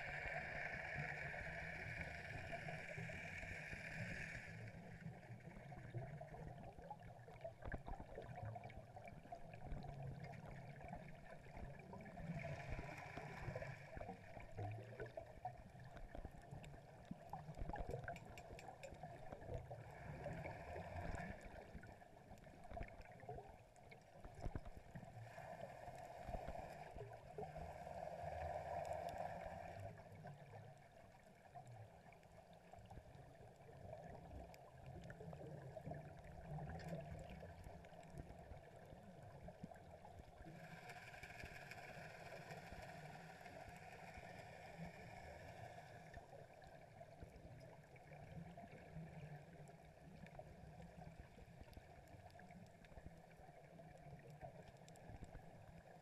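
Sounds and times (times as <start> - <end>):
underwater bubbles gurgling: 0.0 - 56.0
faint clicks: 16.0 - 19.7, 40.4 - 46.2, 48.9 - 55.5.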